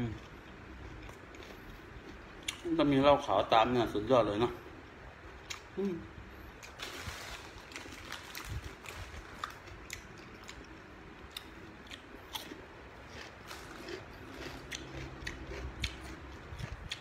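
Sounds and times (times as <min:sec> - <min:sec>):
chewing crisp food: 0:00.0 - 0:03.0, 0:06.6 - 0:17.0.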